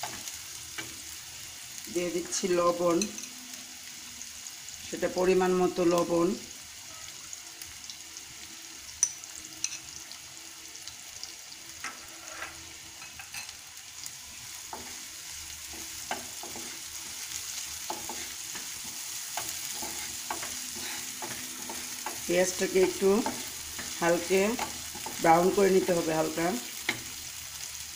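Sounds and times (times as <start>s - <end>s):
onions sizzling in hot oil: 0.0s - 27.9s
spatula scraping and tapping pan: 11.8s - 13.5s, 15.6s - 25.4s, 26.8s - 27.2s.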